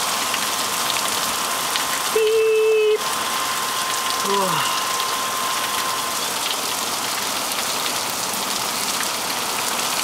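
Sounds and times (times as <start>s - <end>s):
heavy rain pouring: 0.0s - 10.0s.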